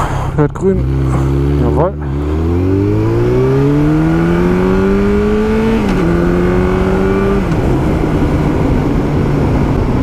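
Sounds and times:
motorcycle engine accelerating: 0.0 - 10.0
wind noise: 2.2 - 10.0.

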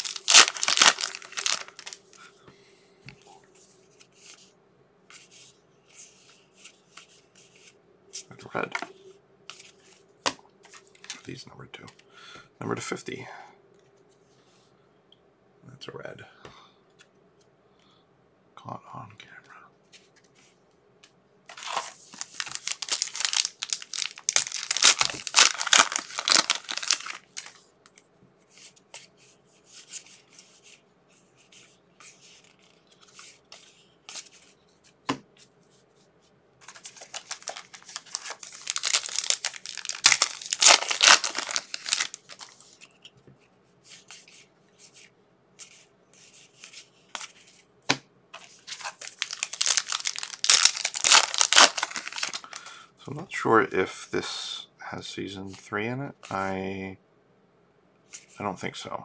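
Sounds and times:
wrappers tearing and crinkling: 0.0 - 2.1, 21.5 - 27.6, 36.7 - 42.6, 48.4 - 52.7.

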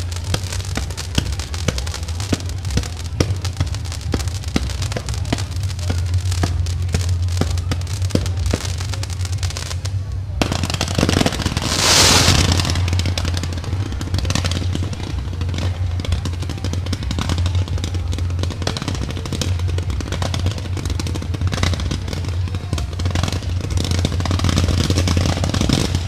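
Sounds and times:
fireworks bangs and crackles: 0.0 - 26.0
steady low hum: 11.2 - 16.6.

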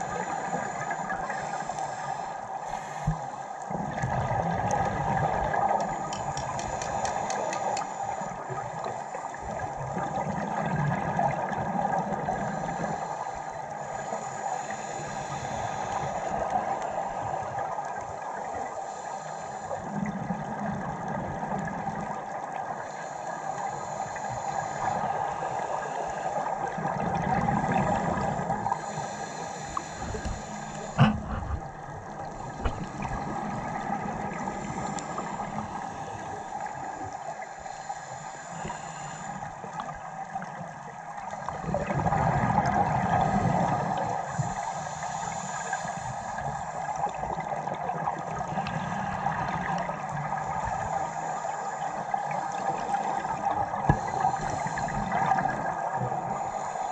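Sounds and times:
diver regulator breathing: 0.0 - 3.9, 4.9 - 9.8, 12.1 - 20.2, 22.7 - 40.1, 43.0 - 56.9
exhaled bubbles underwater: 3.0 - 13.1, 23.7 - 37.2, 38.6 - 44.7, 45.3 - 56.7
steady hum: 27.3 - 40.0.

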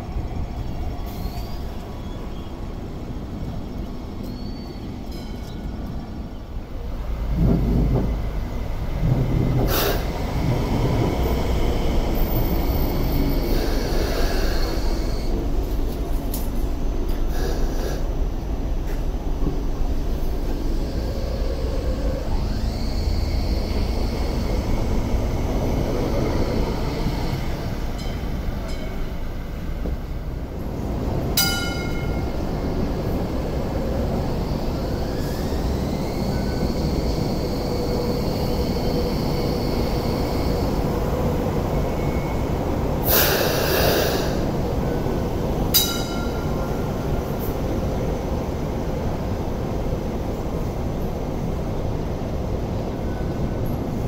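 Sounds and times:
train wheels and motors rumbling: 0.0 - 54.0
loud hiss: 43.0 - 44.6.

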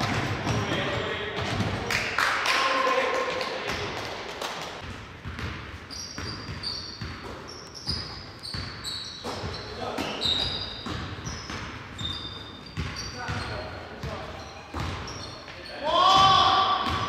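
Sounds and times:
sneakers squeaking: 0.0 - 1.8, 4.8 - 17.0
basketball bouncing on wooden floor: 4.8 - 9.6, 10.3 - 15.2.

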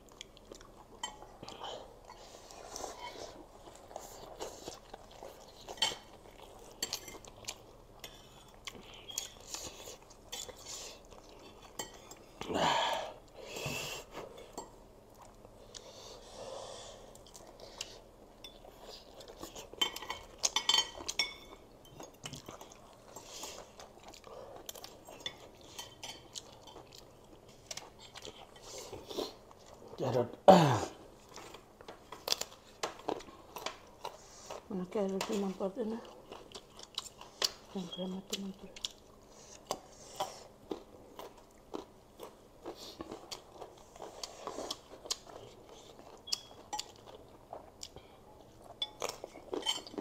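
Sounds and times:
chewing: 0.0 - 12.5, 13.1 - 30.0, 31.2 - 34.7, 36.0 - 50.0
cutlery clinking on plates: 19.8 - 22.5.

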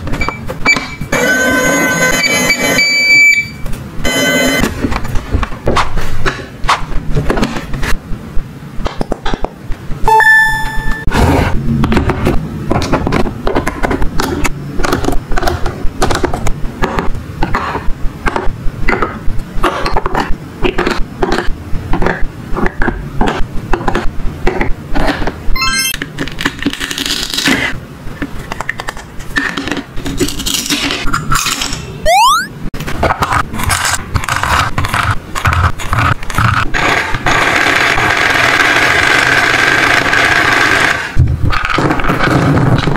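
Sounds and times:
short electronic beep: 10.1 - 11.1, 25.6 - 26.0, 32.1 - 32.5.

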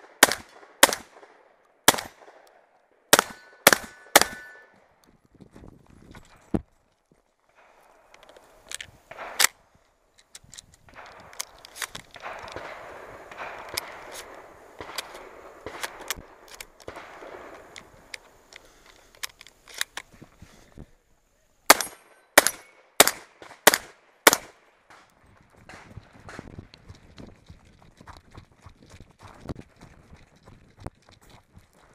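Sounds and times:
gunshots: 0.0 - 2.5, 3.1 - 4.7, 9.1 - 9.6, 12.1 - 17.7, 21.7 - 25.1
footsteps crunching on gravel: 5.1 - 10.2, 25.0 - 31.9.

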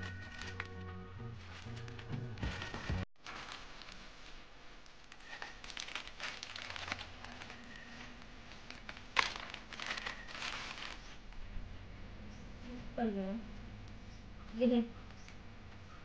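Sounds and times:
packaging crinkling: 1.5 - 4.2, 5.1 - 11.2.

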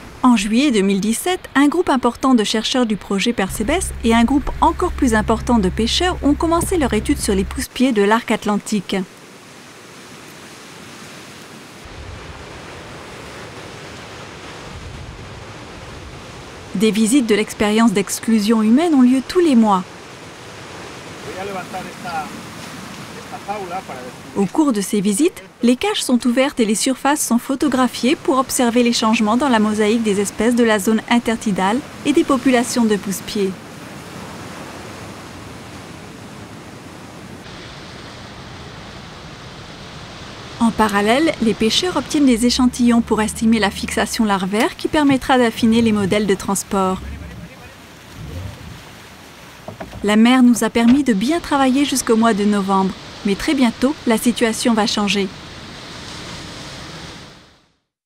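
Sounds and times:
wind: 0.0 - 58.0
sea surf washing over rocks: 9.1 - 17.2, 18.3 - 25.7, 27.5 - 57.4.

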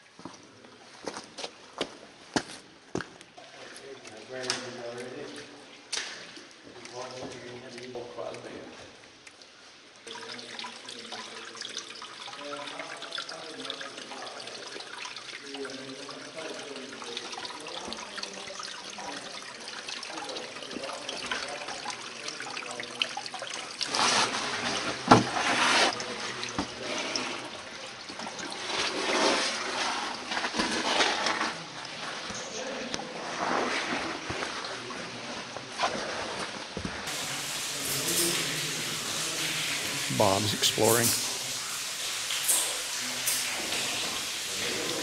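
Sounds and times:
water trickling down wet rock: 3.6 - 33.0.

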